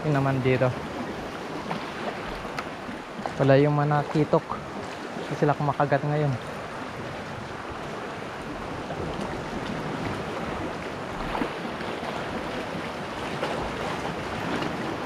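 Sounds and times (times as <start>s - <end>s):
sea water washing against rocks: 0.0s - 15.0s.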